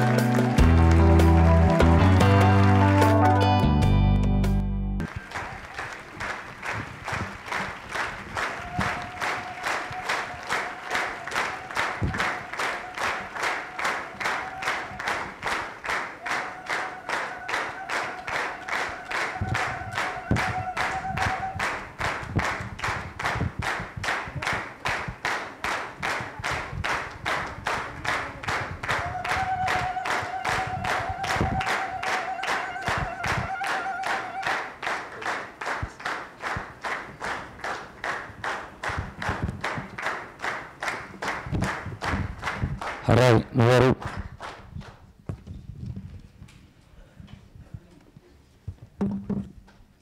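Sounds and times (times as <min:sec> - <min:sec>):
crowd clapping in unison: 0:00.0 - 0:03.5, 0:04.2 - 0:45.1
voices holding long high notes: 0:16.2 - 0:21.8, 0:28.8 - 0:34.7.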